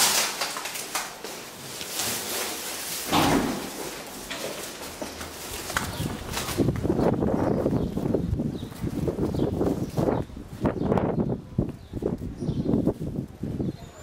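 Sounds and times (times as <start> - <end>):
footsteps: 0.9 - 10.8
heavy door thud: 3.1 - 4.6
metal lift door opening: 3.1 - 4.6.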